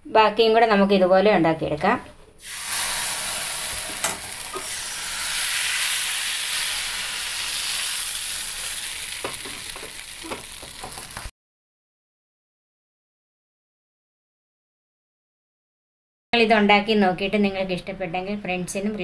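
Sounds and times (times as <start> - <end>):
batter sizzling in hot pan: 2.4 - 11.3.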